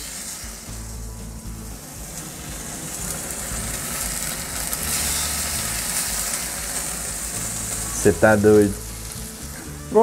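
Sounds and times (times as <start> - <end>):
steaks sizzling in a frying pan: 0.0 - 10.0.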